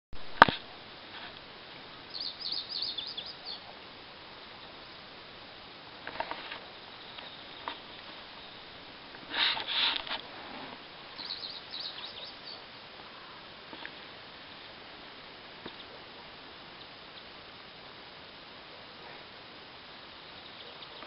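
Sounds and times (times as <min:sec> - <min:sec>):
steady background hiss: 0:00.2 - 0:21.0
short high bird chirps: 0:02.1 - 0:03.6, 0:11.2 - 0:12.6
harsh bird calls: 0:02.1 - 0:03.7, 0:11.1 - 0:13.3.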